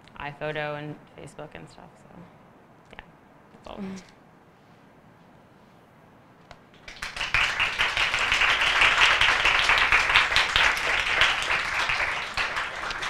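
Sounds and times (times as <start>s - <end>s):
audience applauding: 6.8s - 13.0s.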